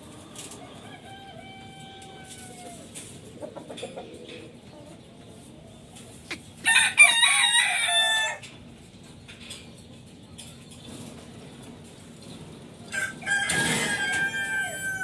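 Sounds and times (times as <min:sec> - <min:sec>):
rooster crowing: 0:00.6 - 0:02.9, 0:06.6 - 0:08.4, 0:12.9 - 0:15.0.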